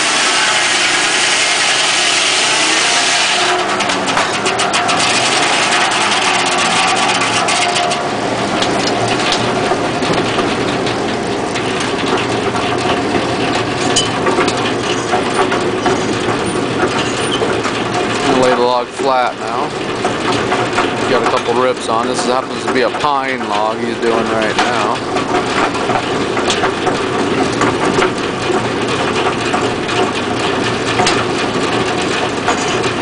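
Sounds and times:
saw blade cutting log: 0:00.0 - 0:08.0
power unit droning: 0:00.0 - 0:33.0.

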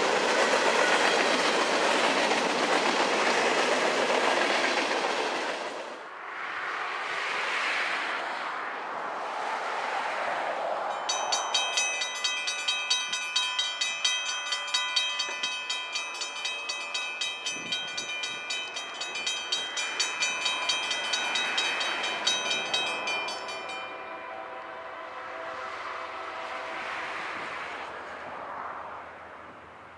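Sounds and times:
railroad crossing bell ringing: 0:00.0 - 0:03.0, 0:10.9 - 0:26.0.

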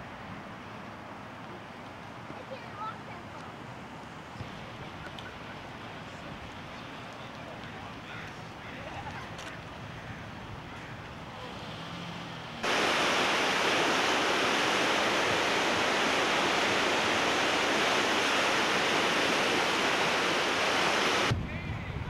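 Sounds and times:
floodwater rushing: 0:12.6 - 0:21.3.

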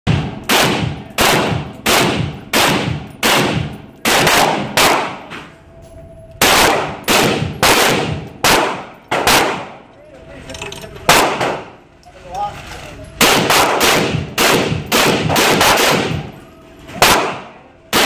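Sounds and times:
machine gun single shots echoing: 0:00.1 - 0:05.3, 0:06.4 - 0:09.8, 0:11.1 - 0:11.8, 0:13.2 - 0:16.4, 0:17.0 - 0:18.0.

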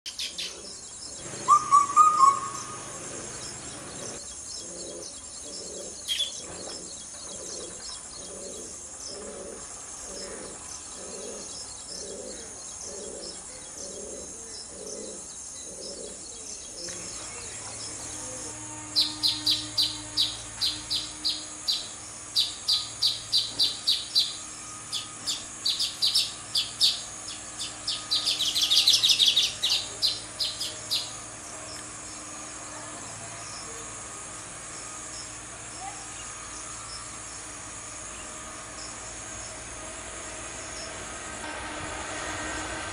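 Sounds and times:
bird chirping: 0:00.1 - 0:32.8
wheezy buzzing trill: 0:17.6 - 0:42.9.

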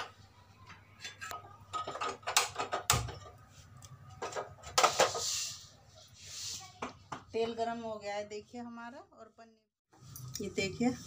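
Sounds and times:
metal pan clattering on stove: 0:01.0 - 0:03.4.

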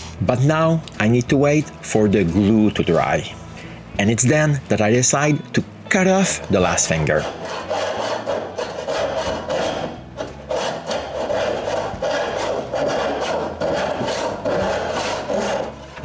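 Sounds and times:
hand saw cutting wood: 0:06.2 - 0:16.0.

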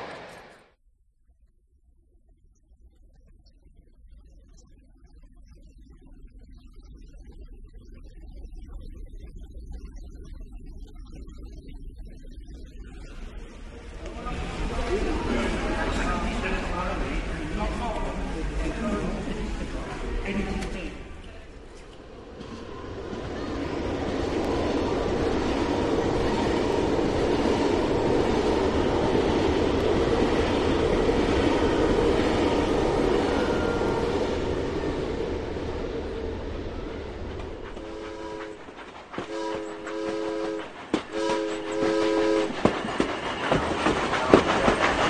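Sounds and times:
model train rolling rumble: 0:13.6 - 0:45.0
train horn blasts: 0:33.1 - 0:34.4, 0:37.8 - 0:42.7.

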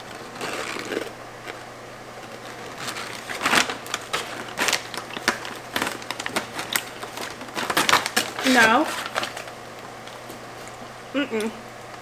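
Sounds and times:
rice crackers being chewed: 0:00.0 - 0:09.5.

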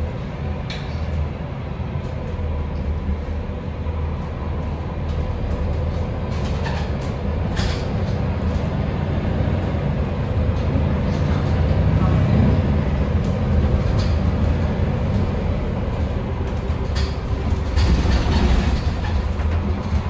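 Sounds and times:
bus engine drone: 0:00.0 - 0:20.0
interior fittings rattling: 0:12.9 - 0:20.0.

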